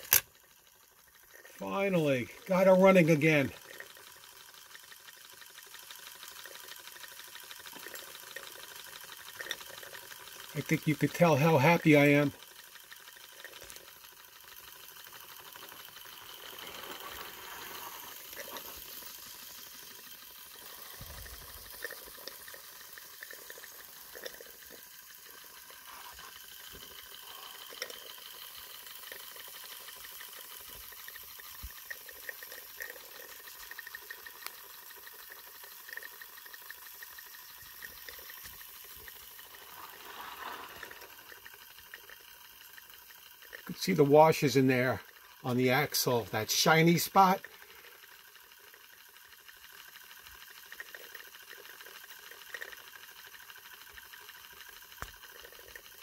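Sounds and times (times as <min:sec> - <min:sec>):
steam hissing: 0:16.2 - 0:19.0, 0:25.8 - 0:28.1, 0:39.2 - 0:41.6.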